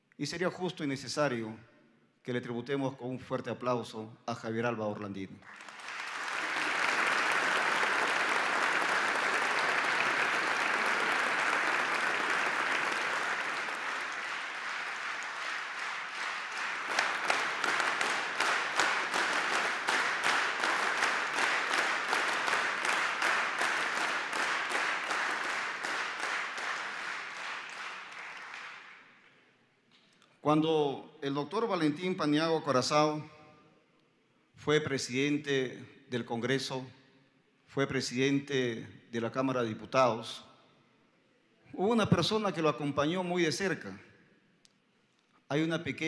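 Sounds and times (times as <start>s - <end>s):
audience applauding: 5.4s - 29.2s
rhythmic unison clapping: 5.4s - 29.4s.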